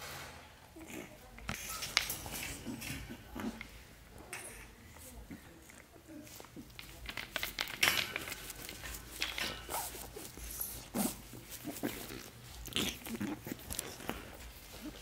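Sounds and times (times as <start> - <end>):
puppy gnawing chew toy: 4.6 - 15.0.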